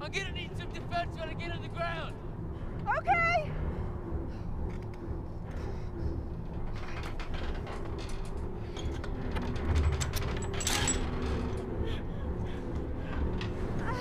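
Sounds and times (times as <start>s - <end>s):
metal frame creaking and clicking: 4.4s - 14.0s.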